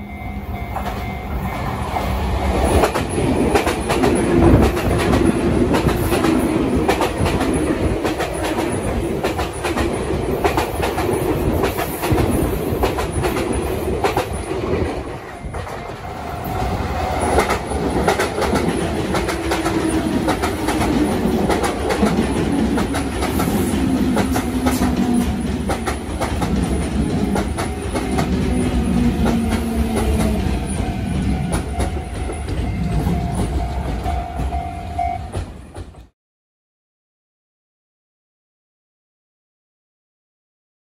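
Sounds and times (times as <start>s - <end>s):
train rumble and wheel clatter: 0.0s - 36.1s
wheels clicking over rail joints: 17.2s - 36.1s.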